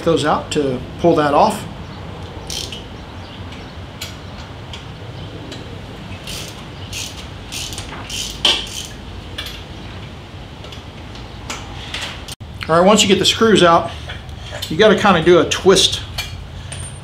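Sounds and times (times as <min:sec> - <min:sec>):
hand ratchet clicking: 0:02.4 - 0:02.8, 0:06.2 - 0:09.5.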